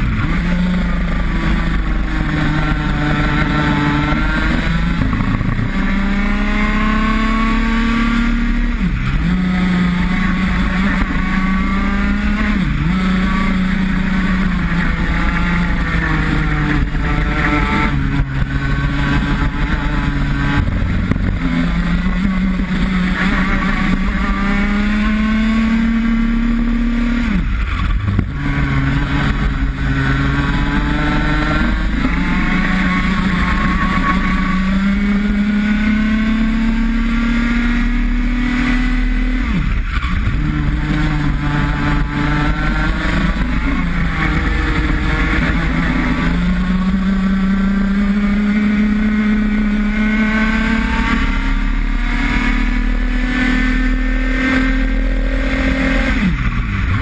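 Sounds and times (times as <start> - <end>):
two-stroke kart engine racing: 0.0 - 57.0.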